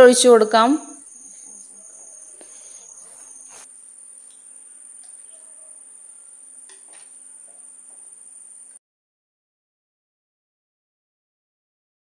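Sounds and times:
spoon scraping clay pot: 1.2s - 5.8s, 6.6s - 8.0s.

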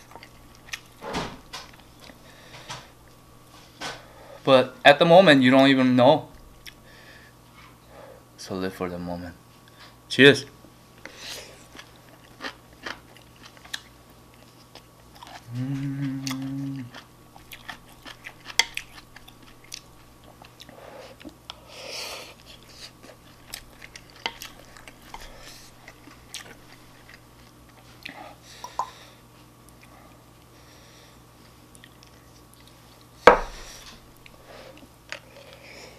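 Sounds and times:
chewing food: 0.0s - 1.0s, 11.0s - 21.6s, 22.3s - 30.6s, 31.4s - 33.1s
person humming: 15.4s - 17.0s.

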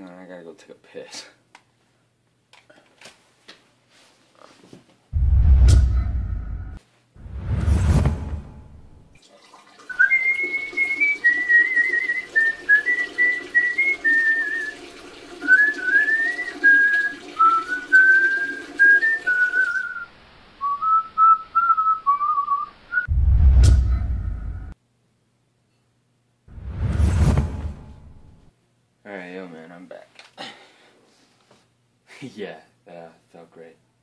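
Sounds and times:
whoosh with low rumble: 5.2s - 9.2s, 23.1s - 24.7s, 26.5s - 28.4s
urine splashing in toilet: 9.2s - 19.8s
man whistling a tune: 9.9s - 14.8s, 15.4s - 23.1s.

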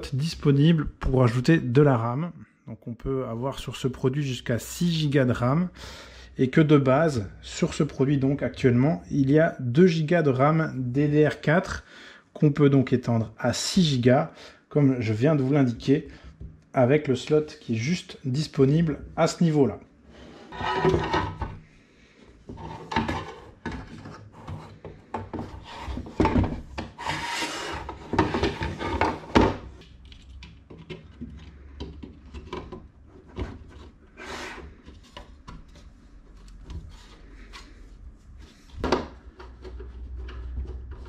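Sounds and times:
metal casing scraping: 20.1s - 21.6s, 22.5s - 29.8s
small knocks and clicks: 29.8s - 33.9s.

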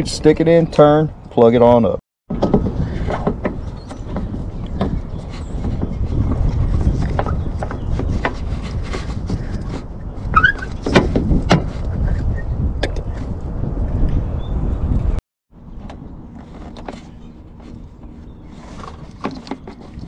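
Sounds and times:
brief squeak: 10.3s - 11.0s.

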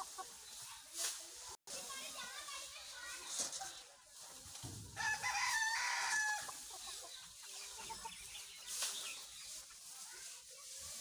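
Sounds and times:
rooster crowing: 5.0s - 6.5s.

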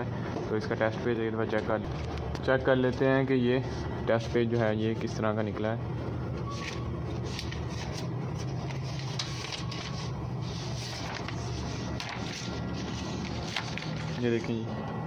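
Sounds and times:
laser printer humming: 0.0s - 15.0s
paper rustling and clicks: 6.4s - 14.6s.

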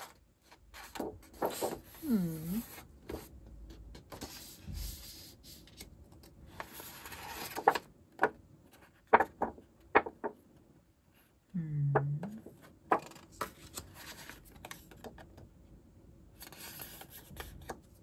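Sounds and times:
paper rustling and sliding: 0.0s - 3.3s, 6.5s - 7.9s, 13.0s - 15.0s, 16.4s - 18.0s.

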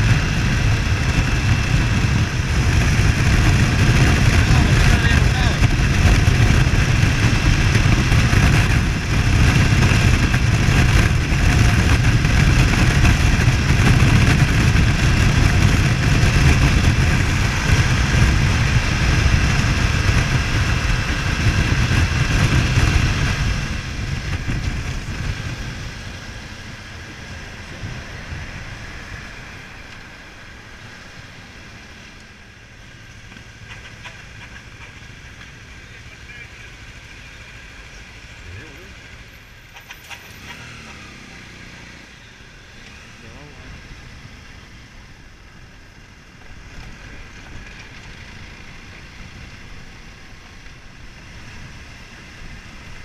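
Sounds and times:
wind rushing: 0.0s - 31.6s
motorcycle engine: 0.0s - 53.0s.

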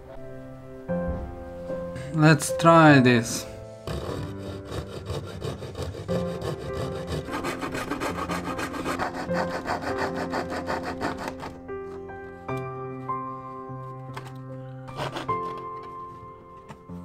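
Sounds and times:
background music: 0.0s - 17.0s
fret saw cutting wood: 3.8s - 17.0s.

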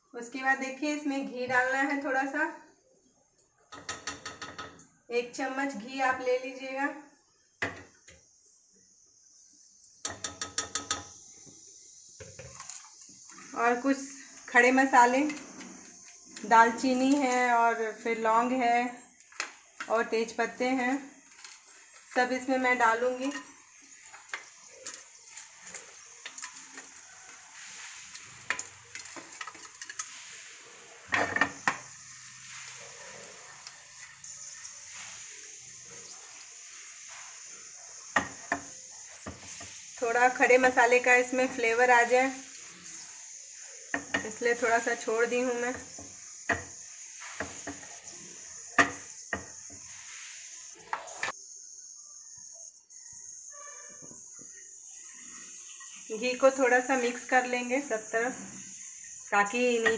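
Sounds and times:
spices sizzling in ghee: 0.0s - 59.9s
spoon clicking on metal pot: 10.1s - 11.1s
sharp crackling pops: 42.3s - 50.0s.

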